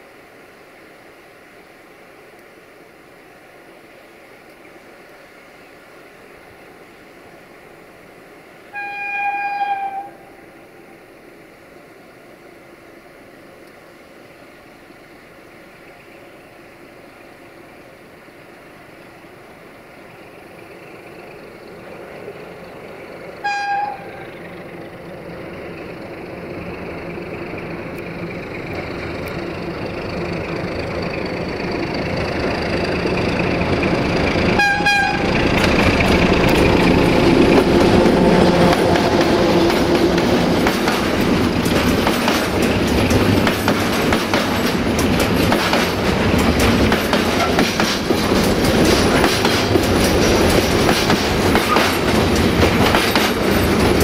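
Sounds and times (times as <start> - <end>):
diesel locomotive engine: 0.0 - 54.0
locomotive horn blasts: 8.7 - 10.4, 23.4 - 24.3, 34.6 - 35.4
train wheels clacking over rail joints: 27.2 - 54.0.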